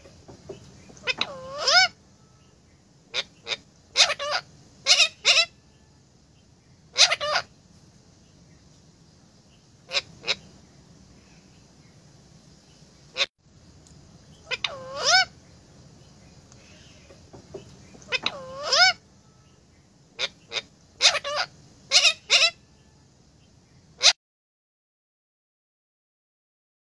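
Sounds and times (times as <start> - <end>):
parakeet squawking: 0.9 - 2.0, 3.1 - 5.6, 6.9 - 7.5, 9.9 - 10.4, 14.4 - 15.3, 16.6 - 19.0, 20.2 - 22.6.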